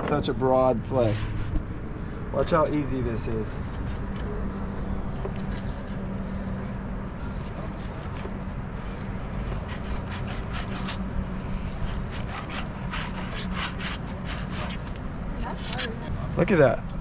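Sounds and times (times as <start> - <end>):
steady low hum: 0.0 - 17.0
knife scraping fish fillet: 5.2 - 6.1.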